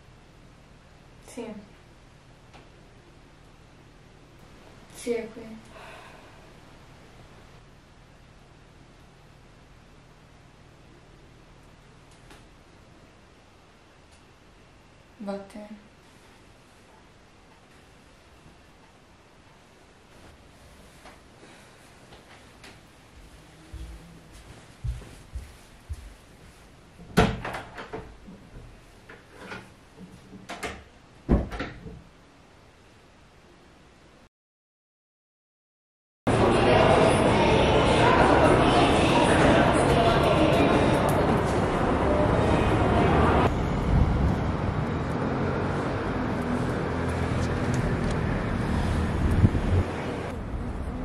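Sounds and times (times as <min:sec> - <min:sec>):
door shutting with a thud: 0:27.1 - 0:28.2, 0:30.5 - 0:32.1
road traffic rumble: 0:36.3 - 0:51.0.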